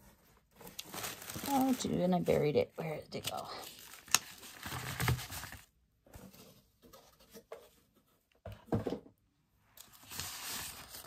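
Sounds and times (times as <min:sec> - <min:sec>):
tissue paper rustling and crinkling: 0:00.0 - 0:06.4, 0:09.8 - 0:11.0.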